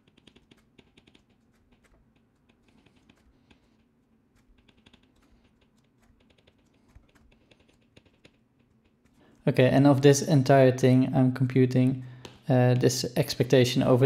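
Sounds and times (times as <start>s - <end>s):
stylus tapping on tablet screen: 0.0s - 9.4s, 12.2s - 12.9s.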